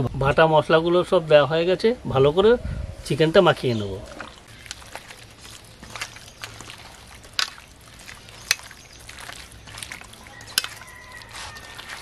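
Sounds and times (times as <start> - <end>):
hands mixing wet chicken: 3.5 - 12.0.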